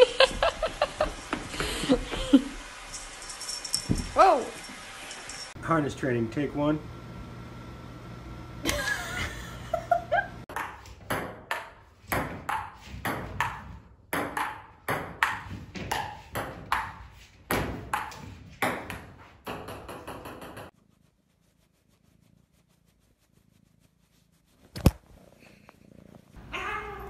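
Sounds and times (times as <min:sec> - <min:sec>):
ping-pong ball bouncing: 0:10.5 - 0:20.7.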